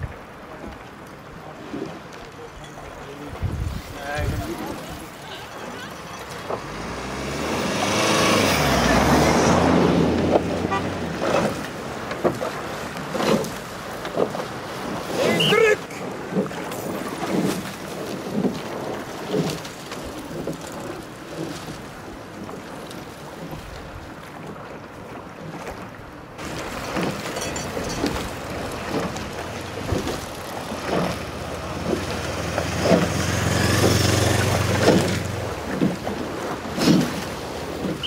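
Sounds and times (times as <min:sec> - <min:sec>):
wind buffeting microphone: 0:03.1 - 0:12.0
low motor hum: 0:28.0 - 0:36.3.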